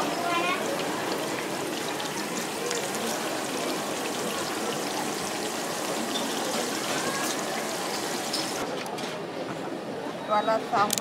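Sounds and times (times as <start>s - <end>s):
seafood deep-frying in oil: 0.0s - 8.7s.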